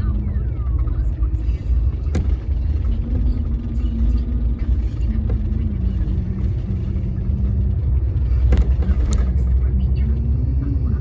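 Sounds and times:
bus engine hum: 0.0s - 11.0s
road rumble: 0.0s - 11.0s.

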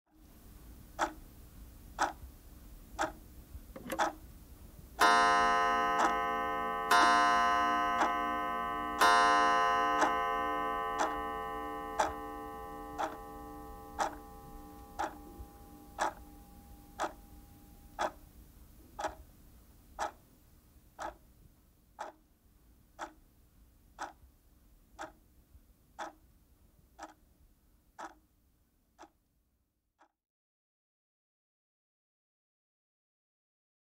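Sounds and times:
pendulum clock ticking: 0.8s - 1.3s, 1.9s - 4.3s, 5.0s - 19.3s, 20.0s - 20.2s, 21.0s - 21.2s, 22.0s - 22.2s, 23.0s - 23.2s, 24.0s - 24.3s, 25.0s - 25.3s, 26.0s - 26.3s, 27.0s - 27.3s, 27.9s - 28.3s, 29.0s - 29.2s
clock chime striking: 5.0s - 17.4s.

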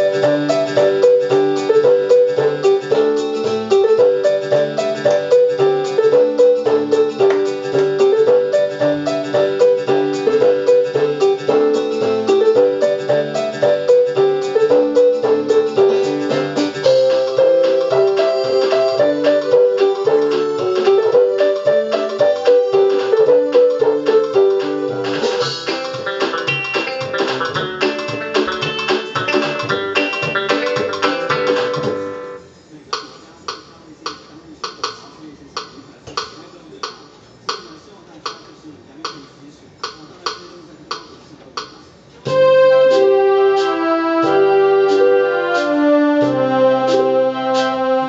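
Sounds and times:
bass notes: 0.0s - 32.4s
electronic keyboard piano melody: 0.0s - 32.5s, 42.2s - 48.0s
steady drum beat: 4.5s - 32.2s, 33.0s - 47.8s.

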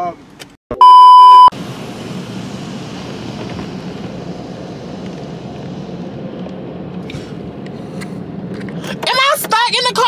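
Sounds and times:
car wash machinery: 1.5s - 9.1s.

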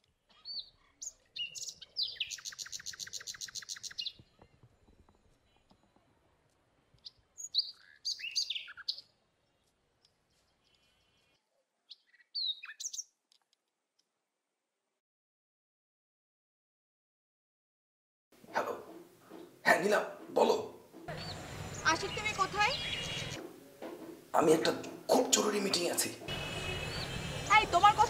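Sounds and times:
small birds chirping and trilling: 0.0s - 5.9s, 7.0s - 13.1s, 21.1s - 23.4s, 26.3s - 28.0s
faint outdoor background noise: 0.0s - 14.1s, 18.4s - 28.0s.

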